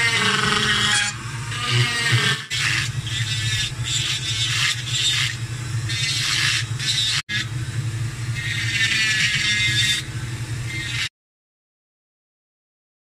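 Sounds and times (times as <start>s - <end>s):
rotary tool grinding wood: 0.0s - 7.5s, 8.3s - 10.1s, 10.7s - 11.1s.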